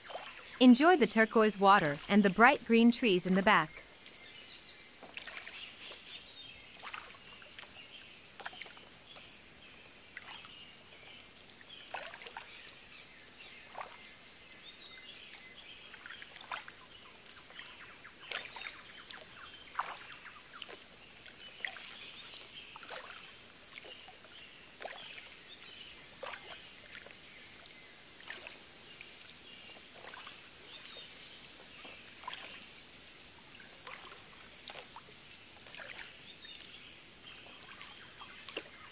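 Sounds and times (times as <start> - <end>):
insect drone: 0.0 - 38.9
water lapping against boat hull: 5.0 - 9.3, 11.8 - 12.9, 15.1 - 32.8, 33.5 - 38.9.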